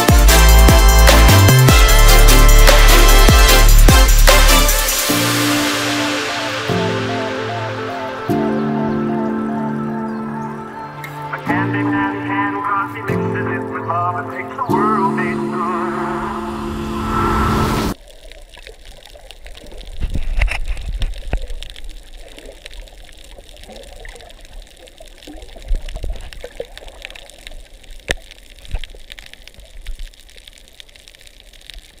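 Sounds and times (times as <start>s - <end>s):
held music chord: 0.0s - 18.0s
underwater crackles and knocks: 18.0s - 32.0s.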